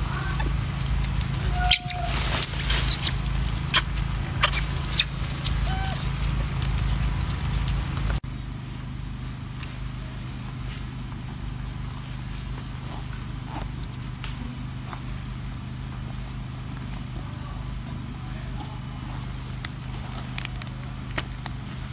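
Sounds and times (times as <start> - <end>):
low hum and rumble: 0.0 - 21.9
clicks and rustles of bag: 19.5 - 21.7.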